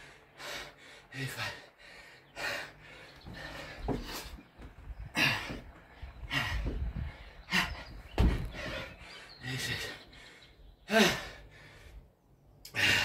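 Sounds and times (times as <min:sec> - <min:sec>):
man breathing hard: 0:00.0 - 0:13.0
dull low thumps: 0:02.9 - 0:09.2.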